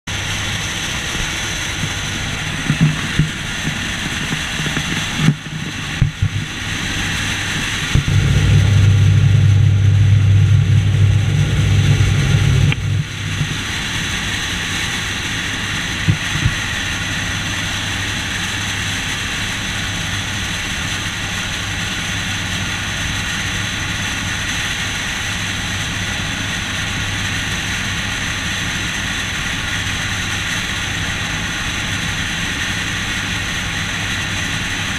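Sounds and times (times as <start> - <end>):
loud low rumble: 0.1 - 24.5
plane engine and airflow drone: 0.1 - 34.9.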